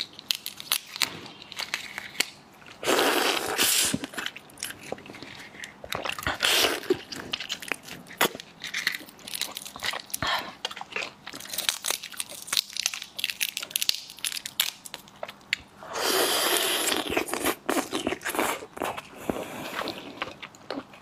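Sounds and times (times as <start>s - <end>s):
prawn shells crackling: 0.0s - 15.5s.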